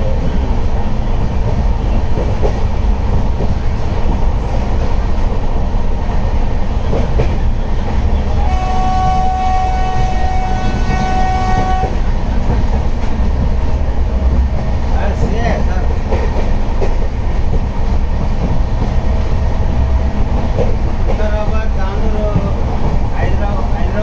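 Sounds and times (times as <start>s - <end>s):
train rumbling: 0.0s - 24.0s
track knocks: 1.3s - 5.7s, 6.8s - 8.2s, 8.8s - 24.0s
train horn: 8.4s - 12.0s.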